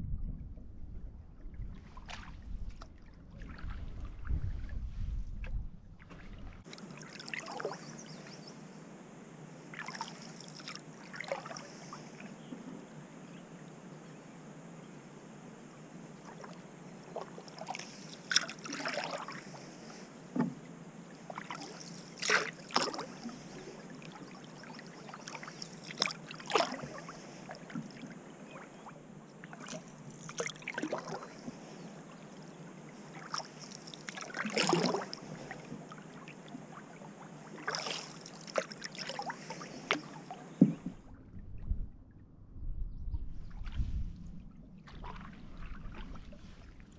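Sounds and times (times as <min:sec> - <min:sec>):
paddle splashing water: 0:01.5 - 0:08.5, 0:09.7 - 0:12.7, 0:16.2 - 0:41.2, 0:44.8 - 0:46.9.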